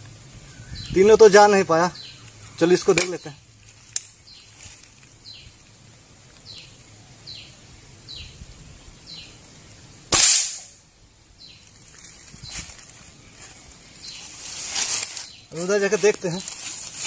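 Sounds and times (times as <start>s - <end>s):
bird chirping: 0.4s - 5.6s, 6.4s - 9.5s, 11.4s - 17.0s
air rifle shot: 10.1s - 10.8s.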